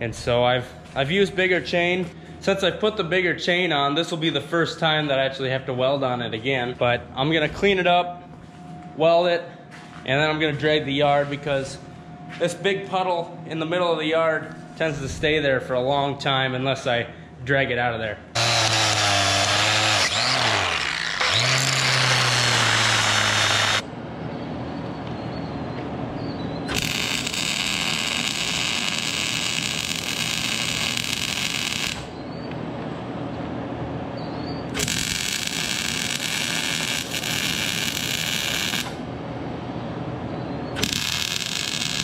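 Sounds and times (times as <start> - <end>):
angle grinder on steel: 18.4 - 23.8, 26.7 - 32.1, 34.8 - 39.0, 40.8 - 42.0
arc welding crackling: 18.4 - 23.8, 26.7 - 32.2, 34.7 - 39.1, 40.8 - 42.0.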